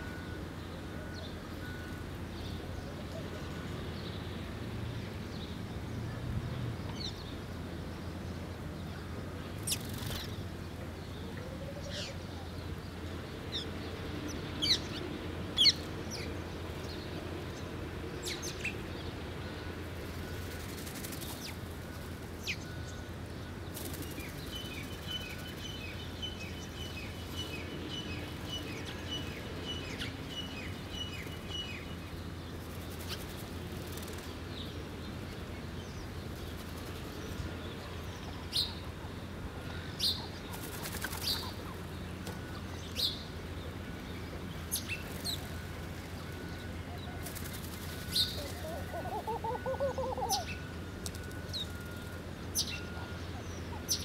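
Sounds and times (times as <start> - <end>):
birds chirping: 6.9 - 54.0
wings fluttering: 9.6 - 10.4, 32.7 - 34.4, 40.5 - 41.7, 47.2 - 49.4.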